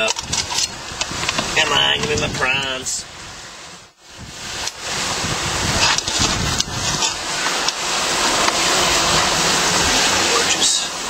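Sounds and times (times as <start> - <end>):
prawns sizzling on a grill: 4.0 - 11.0.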